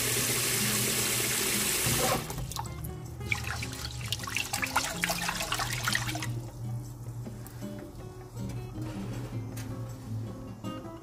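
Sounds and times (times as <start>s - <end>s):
tap water running into pot: 0.0s - 6.5s
light background music: 0.0s - 11.0s.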